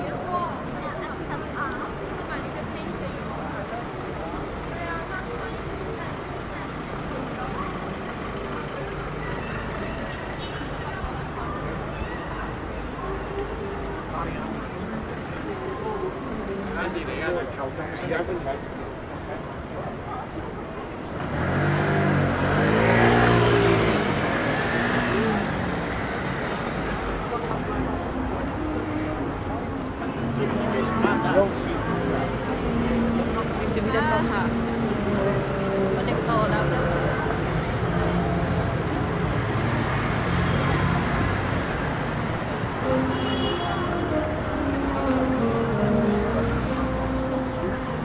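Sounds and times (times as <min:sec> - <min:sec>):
road traffic noise: 0:00.0 - 0:48.0
vehicle engine passing: 0:21.1 - 0:43.1.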